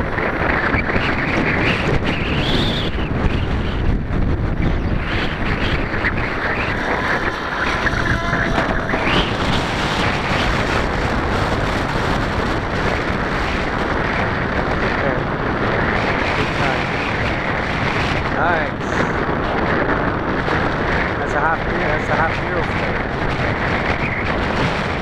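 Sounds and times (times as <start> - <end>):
distant model helicopter whine: 0.0 - 19.4
wind buffeting microphone: 0.0 - 25.0.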